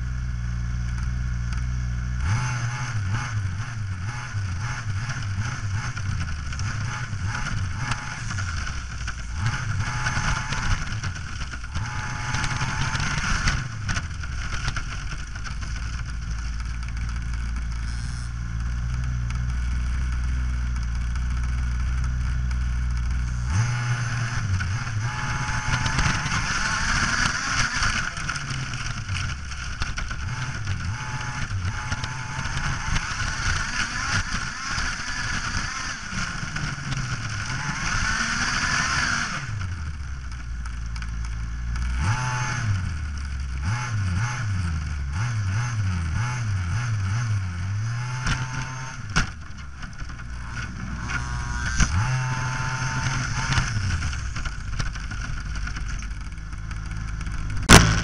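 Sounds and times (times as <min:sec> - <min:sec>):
model car engine revving: 0:06.6 - 0:11.0, 0:11.7 - 0:14.0, 0:23.1 - 0:29.0, 0:50.3 - 0:55.0.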